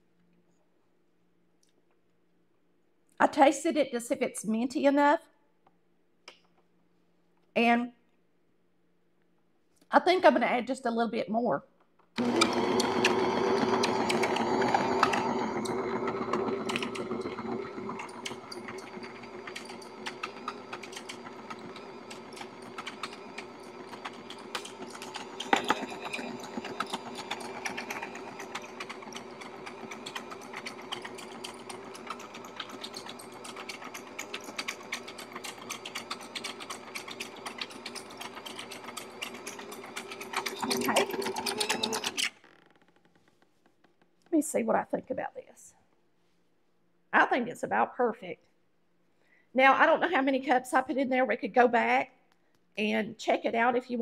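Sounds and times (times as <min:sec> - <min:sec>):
stand mixer motor hum: 0:12.2 - 0:42.2
beaters clicking rattle: 0:14.1 - 0:42.2.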